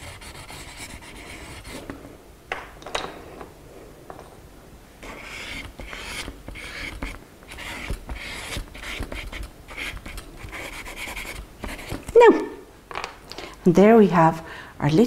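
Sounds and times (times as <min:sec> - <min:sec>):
crayon scraping on paper: 0:00.0 - 0:01.9, 0:05.0 - 0:12.1.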